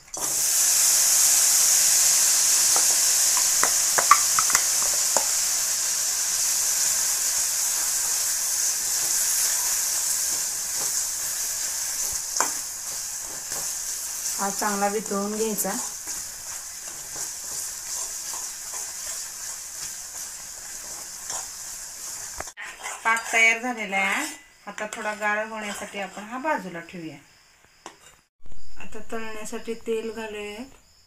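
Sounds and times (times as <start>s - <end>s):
sugar sizzling in hot pan: 0.0s - 26.7s
steel spatula scraping pan: 15.7s - 26.6s.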